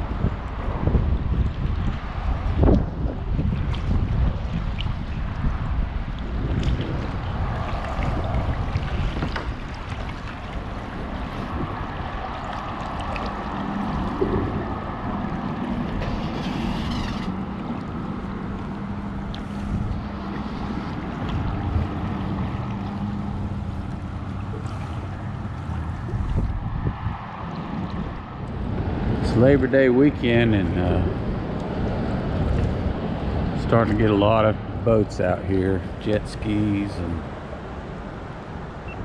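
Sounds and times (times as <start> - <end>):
water lapping against kayak: 0.0 - 39.0
wind on microphone: 0.0 - 39.0
paddle splash: 0.6 - 29.2.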